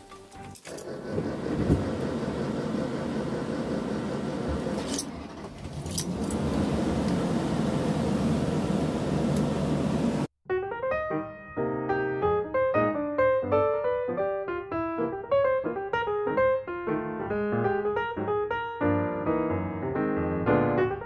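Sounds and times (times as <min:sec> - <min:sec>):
motorhome engine running: 0:00.8 - 0:10.3
piano music: 0:10.5 - 0:21.0.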